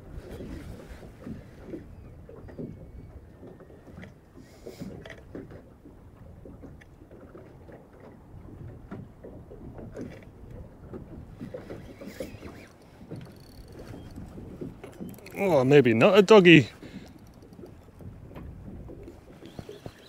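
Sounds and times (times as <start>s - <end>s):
waves lapping against boat hull: 0.0s - 20.0s.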